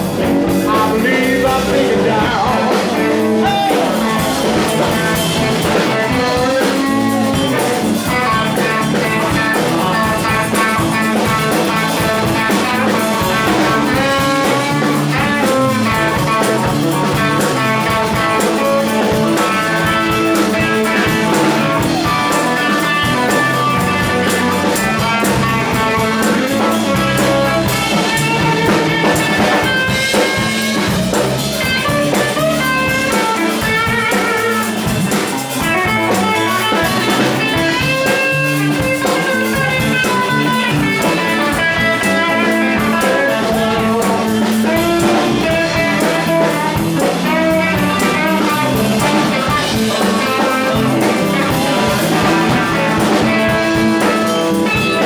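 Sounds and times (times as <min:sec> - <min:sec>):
bass guitar: 0:00.0 - 0:55.0
drum kit: 0:00.0 - 0:55.0
electric guitar lead: 0:00.0 - 0:55.0.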